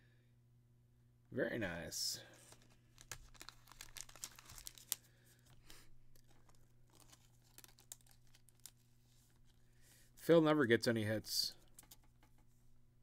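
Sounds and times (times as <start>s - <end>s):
low steady hum: 0.0s - 13.0s
card sleeve rustling and clicks: 2.4s - 9.6s.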